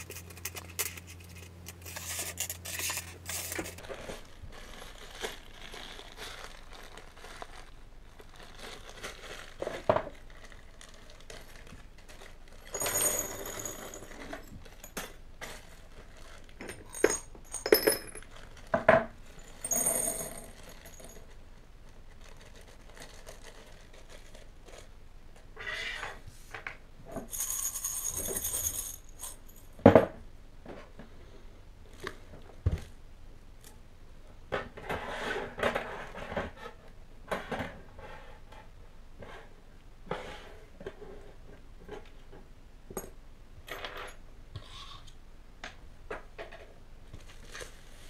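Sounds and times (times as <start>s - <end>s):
small metal parts clinking: 12.1s - 18.6s, 19.4s - 21.4s, 27.3s - 29.7s
short jangling rattles: 12.7s - 14.4s, 27.3s - 29.5s.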